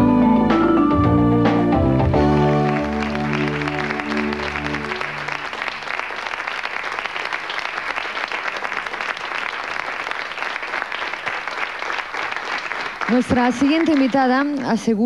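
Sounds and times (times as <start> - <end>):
held music chord: 0.0 - 5.6
audience applauding: 2.1 - 14.9.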